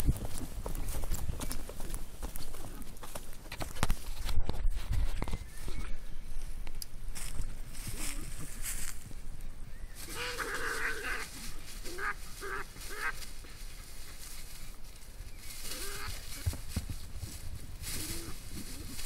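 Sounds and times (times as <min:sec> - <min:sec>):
badgers screaming: 0:10.1 - 0:13.2.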